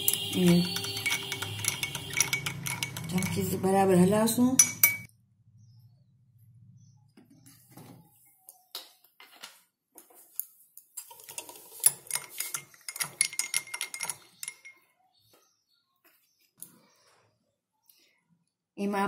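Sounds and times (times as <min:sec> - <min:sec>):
metal spoon clinking against glass: 0:00.0 - 0:03.7, 0:04.5 - 0:05.1, 0:11.9 - 0:14.9.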